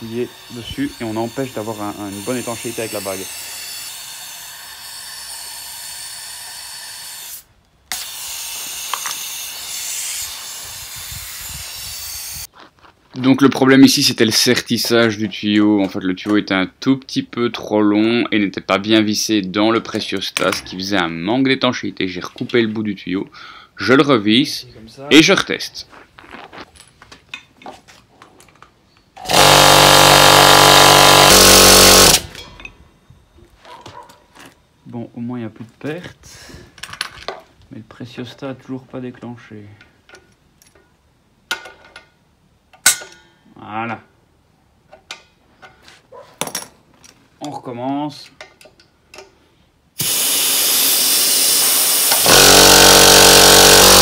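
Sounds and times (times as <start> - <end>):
electric air compressor running: 29.2 - 32.3, 50.0 - 54.0
compressed air hissing: 50.0 - 52.8.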